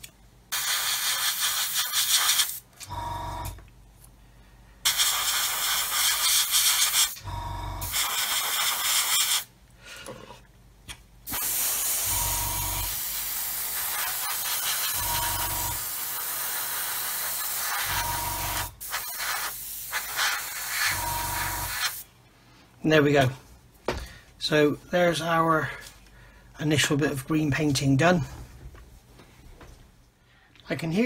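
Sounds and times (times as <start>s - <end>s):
airbrush spraying hiss: 0.5s - 2.6s, 4.8s - 7.2s, 7.8s - 9.5s, 11.4s - 12.2s, 12.8s - 22.1s
short low hum: 7.2s - 7.8s.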